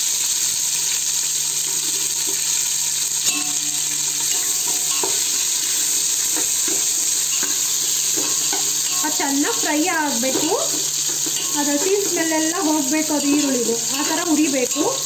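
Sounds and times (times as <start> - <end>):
food sizzling in hot oil: 0.0 - 15.0
metal ladle knocking pot: 4.2 - 5.3.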